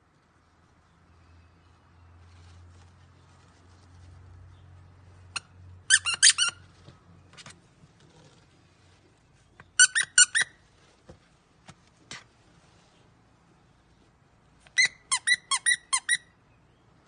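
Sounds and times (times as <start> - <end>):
dog toy squeaks: 5.4 - 6.7, 9.7 - 10.6, 14.7 - 16.3.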